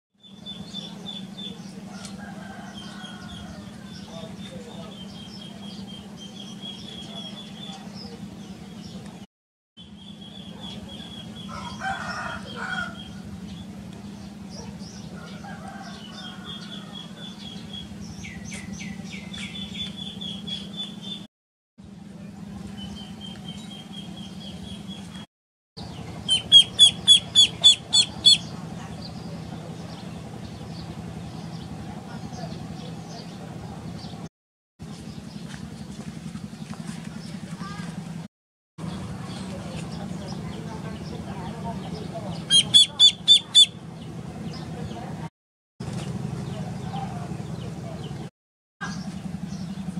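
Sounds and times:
small birds chirping: 0.2s - 21.3s, 22.2s - 38.0s, 38.8s - 45.2s, 45.9s - 49.9s
rooster crowing: 1.9s - 4.0s, 11.4s - 13.3s, 15.1s - 17.4s
ducklings peeping: 25.8s - 31.7s, 41.9s - 43.8s
fowl calling: 26.3s - 28.6s, 42.4s - 43.8s.

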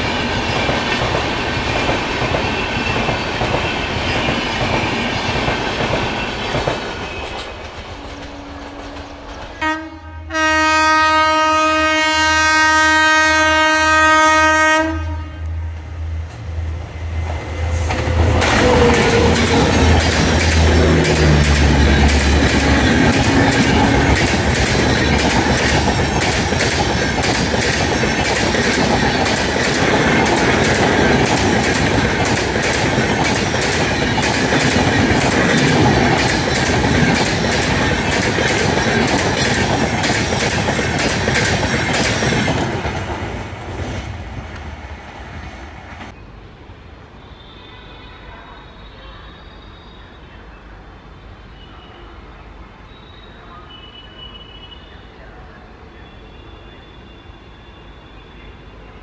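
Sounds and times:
locomotive hum: 0.0s - 46.6s
train wheels clattering over rail joints: 17.2s - 44.8s.

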